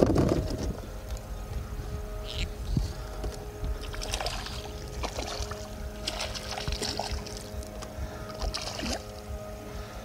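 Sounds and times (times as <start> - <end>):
steady low hum: 0.0 - 10.0
fish thrashing and splashing: 3.8 - 7.6.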